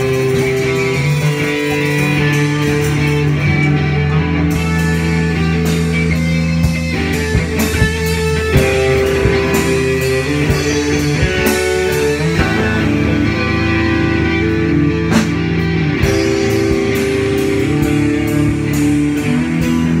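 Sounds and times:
drum and cymbal hits: 0.0s - 13.8s, 15.0s - 20.0s
electric guitars sustained notes: 0.0s - 20.0s.

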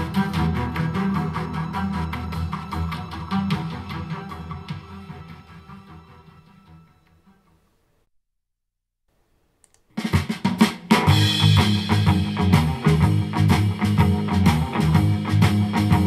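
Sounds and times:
drum-led music through speakers: 0.0s - 6.1s, 10.0s - 16.0s.

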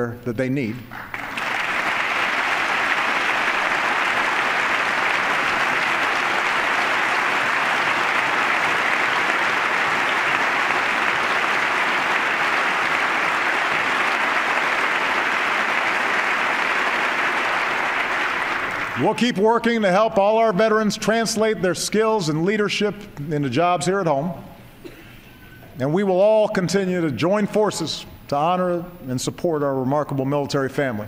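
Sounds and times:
crowd applauding: 0.9s - 19.4s.

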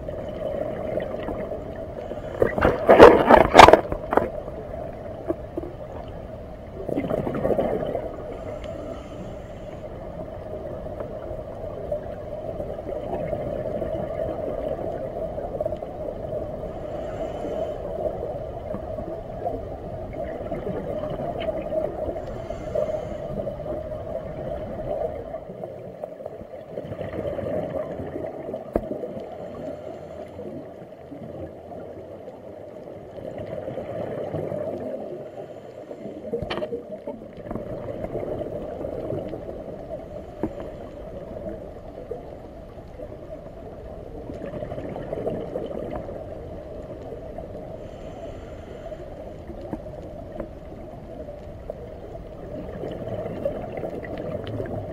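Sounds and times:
gurgling exhaled bubbles: 0.0s - 8.6s, 10.4s - 25.9s, 26.5s - 29.8s, 33.1s - 35.2s, 36.2s - 48.1s, 49.5s - 54.9s
regulator hissing inhale: 1.9s - 2.6s, 8.2s - 10.2s, 16.6s - 18.3s, 22.1s - 24.0s, 29.3s - 30.7s, 35.2s - 36.3s, 47.7s - 49.5s.

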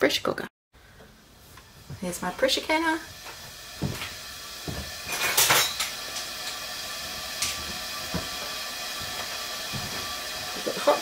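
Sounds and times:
kitchenware clanking: 3.8s - 6.7s.

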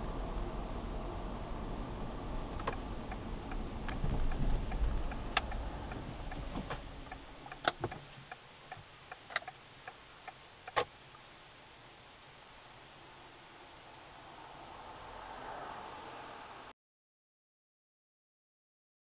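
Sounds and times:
road and engine rumble: 0.0s - 16.7s
regular sharp ticks: 2.6s - 11.2s.

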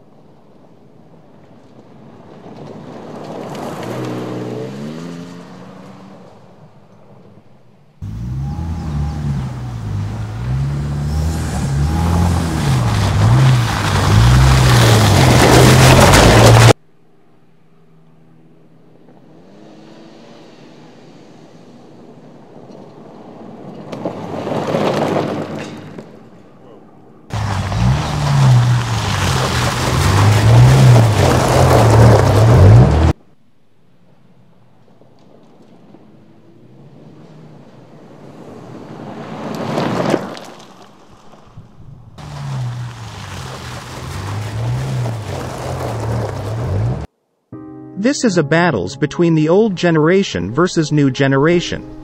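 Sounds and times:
tyres on gravel: 0.0s - 7.3s, 8.0s - 16.8s, 22.3s - 26.6s, 27.3s - 33.2s, 34.8s - 47.1s
pickup truck engine under load: 8.0s - 16.8s, 27.3s - 33.2s, 34.9s - 47.1s.

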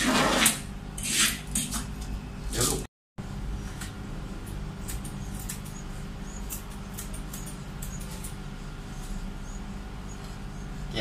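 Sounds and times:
scissors snipping fur: 4.4s - 8.4s.

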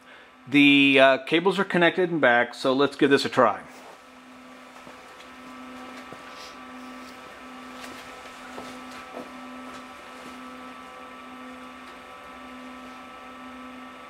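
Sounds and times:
power amplifiers humming: 0.0s - 14.0s.

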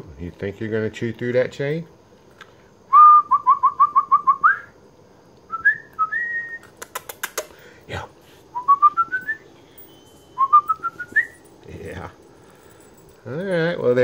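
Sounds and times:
person whistling short notes: 2.9s - 4.7s, 5.5s - 6.8s, 8.5s - 9.4s, 10.4s - 11.4s
sharp clicks: 6.6s - 7.6s.

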